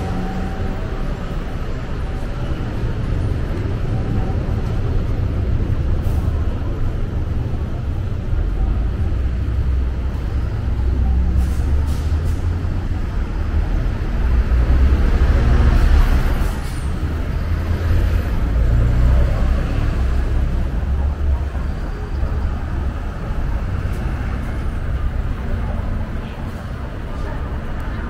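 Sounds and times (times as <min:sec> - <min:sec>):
rumble of passing traffic: 0:00.0 - 0:28.0.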